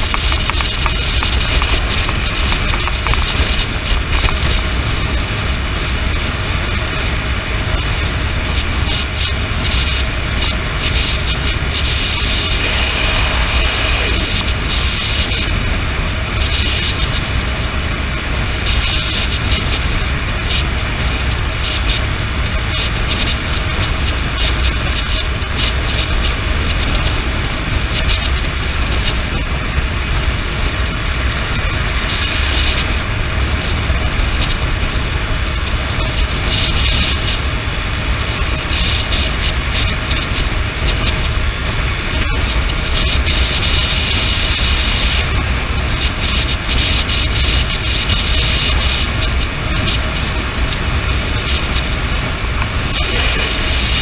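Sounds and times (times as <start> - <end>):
motorcycle engine: 0.0 - 18.9, 48.9 - 54.0
road noise: 0.0 - 54.0
wind buffeting microphone: 0.0 - 54.0.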